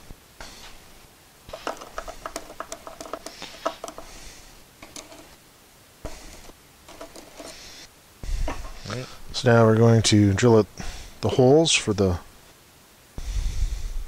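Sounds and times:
pencil tapping on plywood: 1.5 - 4.2, 4.8 - 5.4, 6.1 - 7.6.

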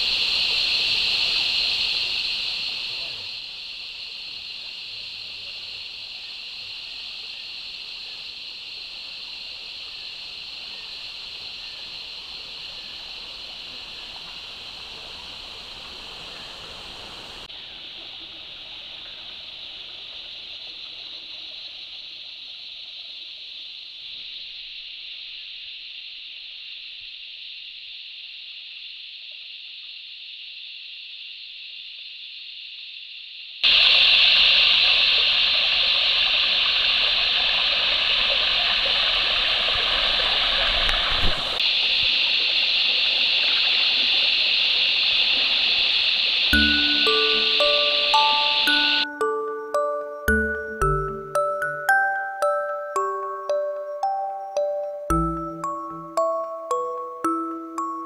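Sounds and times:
creek water running: 0.0 - 23.6, 33.6 - 58.0
high-pitched insect drone: 46.1 - 58.0.

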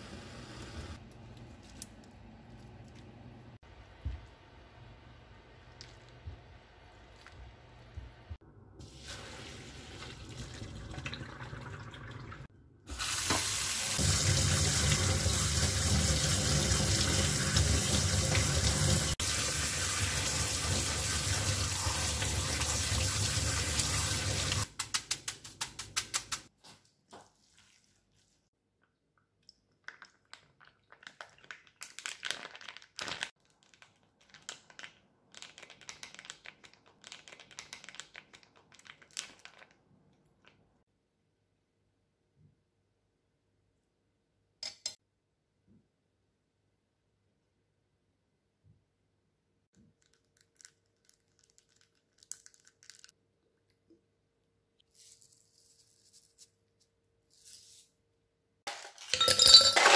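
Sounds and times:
tap water running into sink: 8.9 - 24.6
plastic crinkling: 30.3 - 39.8, 49.8 - 53.2.

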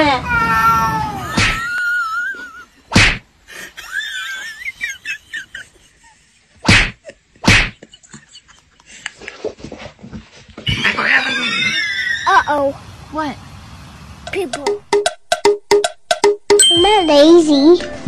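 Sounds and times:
cat yowling: 0.0 - 1.8
sharp loud thumps: 2.9 - 3.3, 6.6 - 7.8, 14.2 - 17.0.

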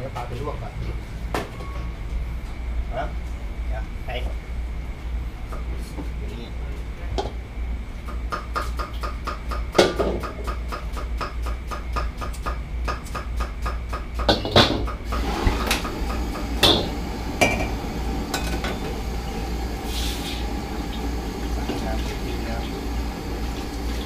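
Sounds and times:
gas burner rushing: 14.9 - 24.0.

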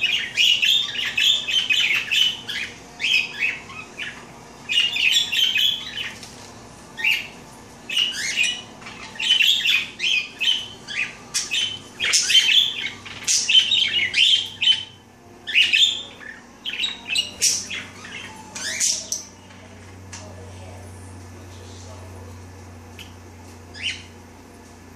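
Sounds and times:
budgerigars chirping: 0.0 - 6.2, 7.0 - 19.3.

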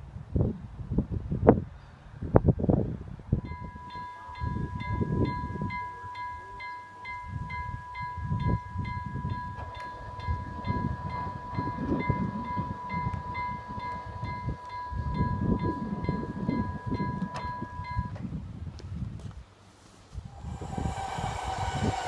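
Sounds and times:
level crossing bell ringing: 3.5 - 18.2.

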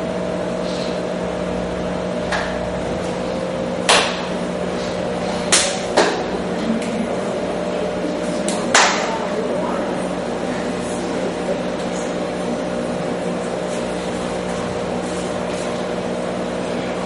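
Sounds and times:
electrical hum and hiss: 0.0 - 17.0
sharp knocks: 3.9 - 4.4.

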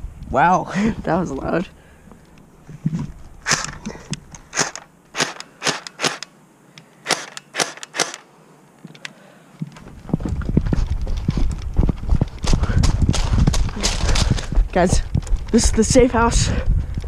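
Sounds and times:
rumble: 0.0 - 4.8, 9.7 - 17.0
airsoft gun shots: 4.5 - 6.2, 7.0 - 8.2
quick thumping footsteps: 9.7 - 17.0.

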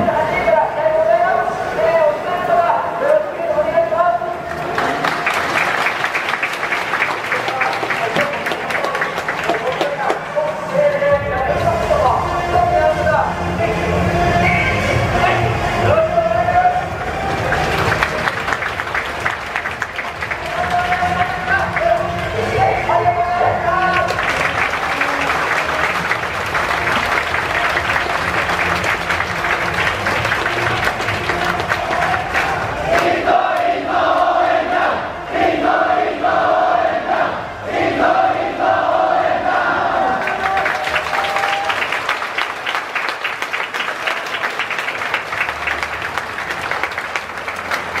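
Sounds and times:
crowd applauding: 4.4 - 12.6, 16.4 - 33.1, 40.1 - 48.0
crowd chant: 13.8 - 40.6.

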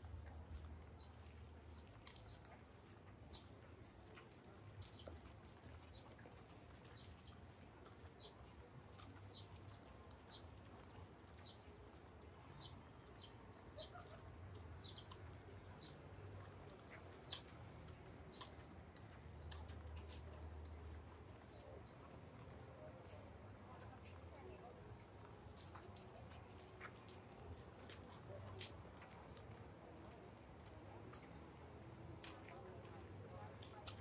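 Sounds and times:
small birds chirping: 0.2 - 26.1.

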